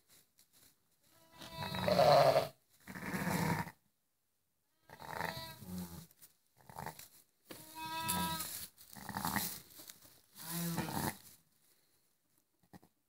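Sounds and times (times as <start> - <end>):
sheep bleating: 1.2 - 3.7, 4.8 - 6.0, 6.8 - 9.6, 10.4 - 11.2.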